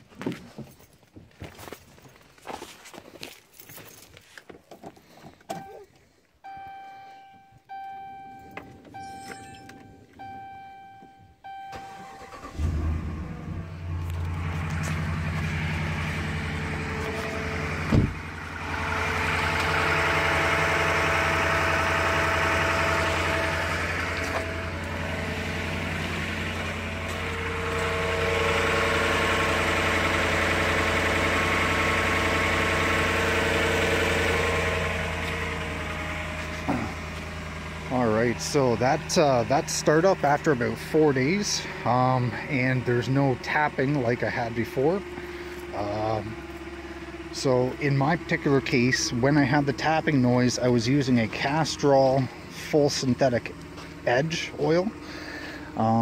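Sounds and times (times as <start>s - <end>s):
truck engine starting and idling: 5.0s - 56.0s
dashboard chimes: 6.4s - 12.2s.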